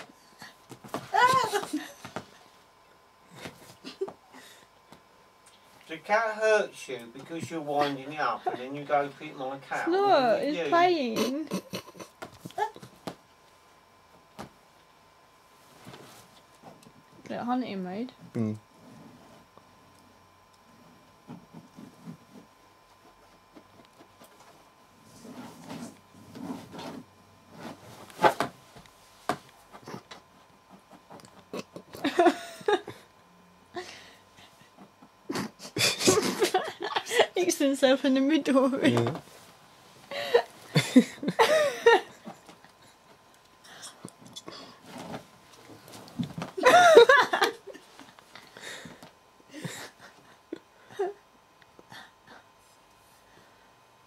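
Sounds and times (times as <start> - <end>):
woman laughing: 1.1 - 2.1, 11.1 - 12.8, 31.6 - 33.0, 35.3 - 37.5, 40.1 - 42.3, 46.6 - 47.8
scratching on fabric: 21.4 - 30.0.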